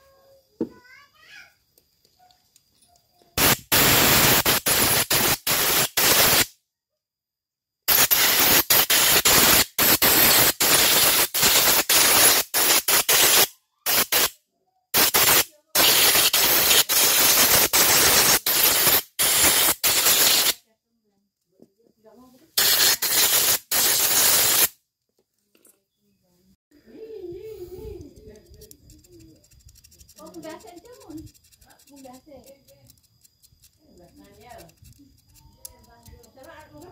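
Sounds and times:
compressed air hissing bursts: 3.4 - 6.5, 7.9 - 20.6, 22.6 - 24.8.

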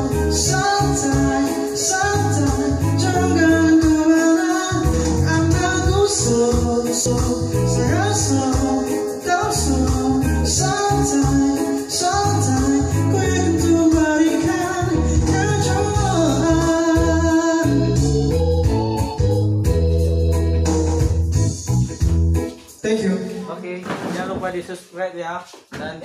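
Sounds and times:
steady bass beat: 0.0 - 4.1, 4.7 - 8.8, 9.5 - 11.6, 12.2 - 22.5
man singing into microphone: 0.0 - 19.0, 22.8 - 23.6
keyboard accompaniment: 0.0 - 23.5.

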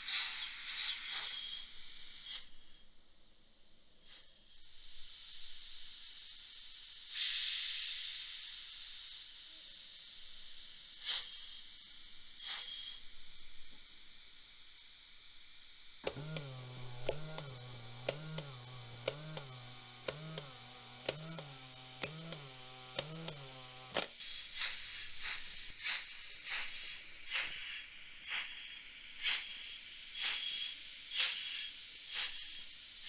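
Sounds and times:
model turntable drive humming: 16.0 - 24.2
small sharp clicks: 16.0 - 24.2.

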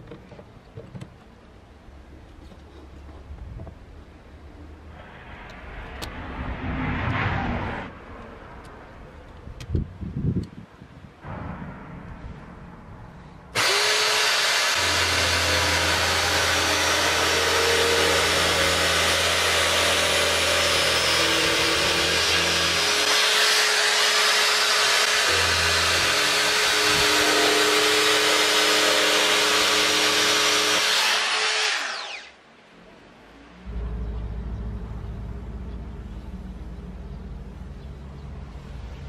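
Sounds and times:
electric drill routing wood: 13.6 - 32.4.

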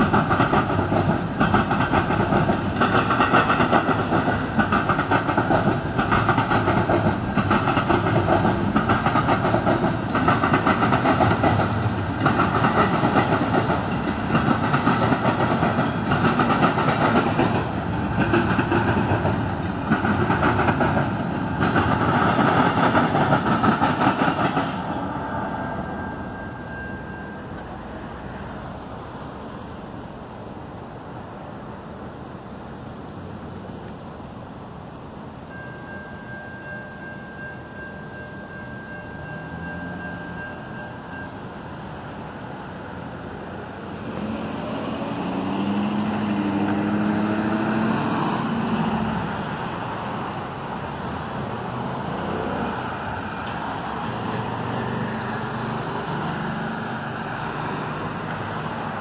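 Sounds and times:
rhythmic rail clatter: 0.0 - 29.4, 34.1 - 59.0
freight train wheels rumbling on rails: 0.0 - 32.5, 33.1 - 59.0.

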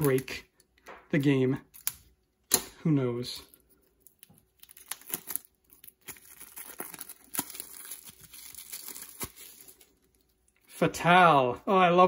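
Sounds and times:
plastic wrap crinkling: 3.4 - 10.7
plastic wrap tearing: 4.2 - 10.6.

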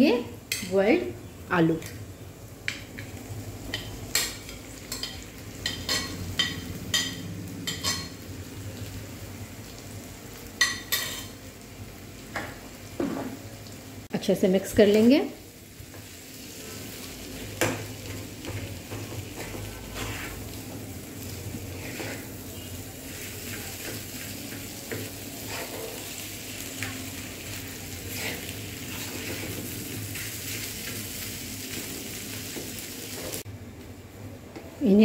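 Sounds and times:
potatoes sizzling in oil: 0.0 - 33.5
wooden spoon scraping pan: 19.4 - 20.4, 21.7 - 22.3, 25.4 - 26.1.

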